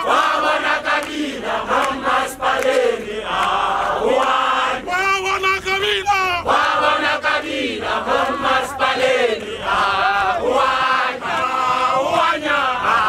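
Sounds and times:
crowd singing a protest chant: 0.0s - 5.2s, 5.8s - 13.0s.

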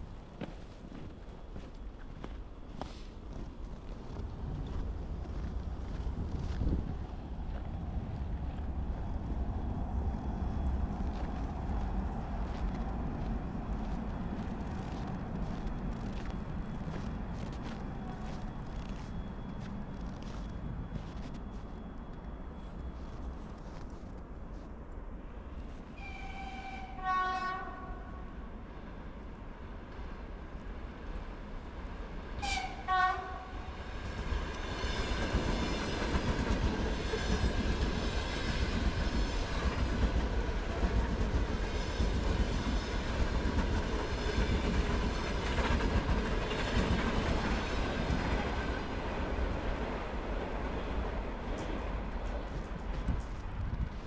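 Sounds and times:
train wheels rumbling on rails: 0.0s - 24.7s, 32.0s - 54.0s
train whine: 0.0s - 54.0s
train horn blasts: 25.9s - 28.3s, 32.4s - 33.7s.

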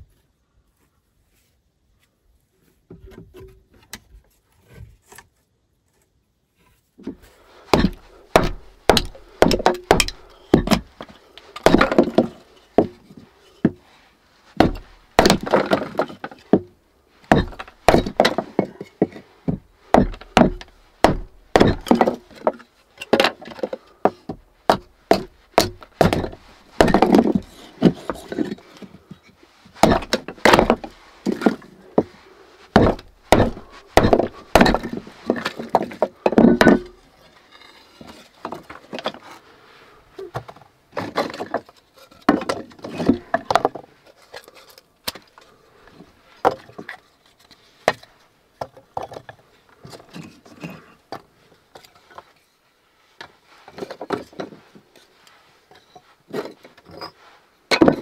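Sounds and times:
hatchet chopping wood: 7.7s - 10.9s, 11.6s - 13.0s, 14.6s - 16.7s, 17.3s - 18.8s, 19.5s - 28.3s, 29.8s - 32.1s, 32.7s - 37.0s.

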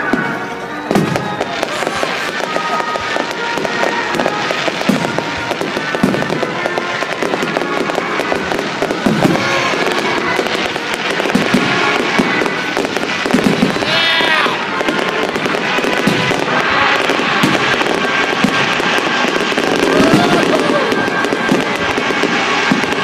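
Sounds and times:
fireworks booms: 0.0s - 23.0s
fireworks crackling and popping: 0.0s - 23.0s.

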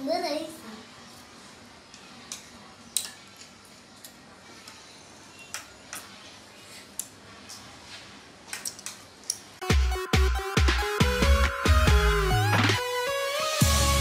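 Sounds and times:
spoons clicking against bowls: 1.9s - 4.8s, 8.5s - 9.5s.

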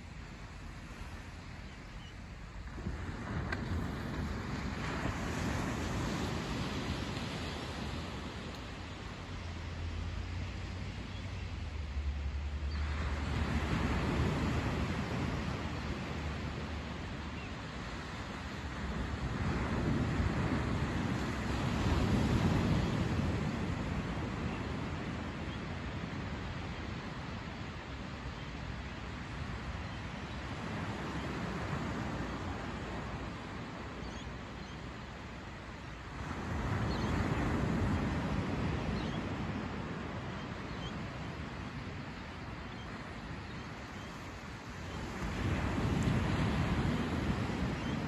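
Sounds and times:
wind rumbling on microphone: 0.0s - 27.4s, 36.2s - 48.0s
ocean waves washing up beach: 2.4s - 48.0s.

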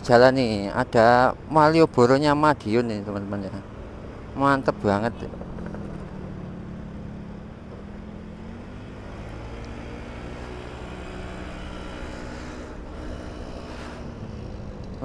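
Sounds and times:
wind and road noise: 0.0s - 15.0s
scooter engine running: 3.2s - 15.0s.

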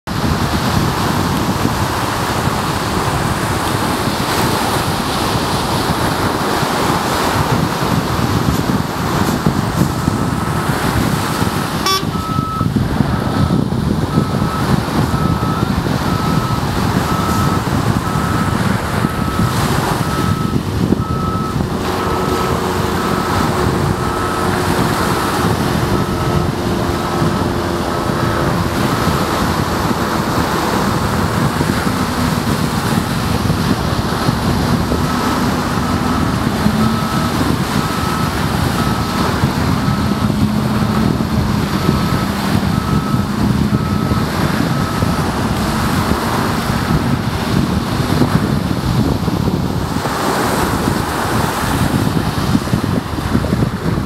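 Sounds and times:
wind: 0.0s - 54.0s
diesel machinery running: 0.1s - 54.0s
reversing alarm beeping: 7.3s - 48.2s.

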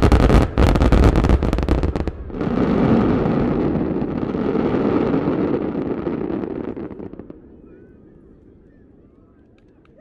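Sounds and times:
distant firework booms: 0.0s - 7.6s.

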